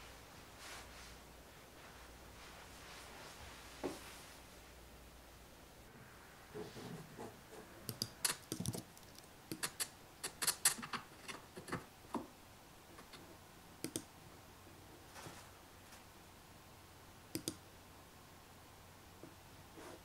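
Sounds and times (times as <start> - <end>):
keyboard and mouse clicks: 7.9 - 11.8, 13.8 - 14.1, 17.3 - 17.6.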